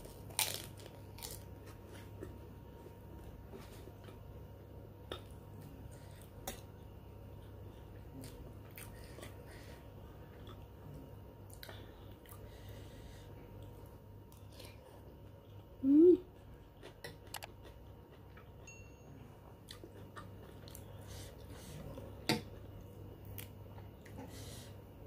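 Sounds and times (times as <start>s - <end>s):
soft chewing: 5.0s - 18.7s, 19.5s - 24.6s.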